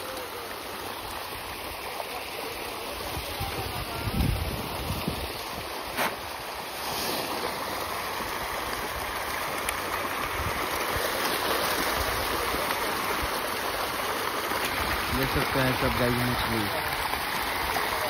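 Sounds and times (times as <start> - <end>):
fish thrashing and splashing: 4.8 - 15.1.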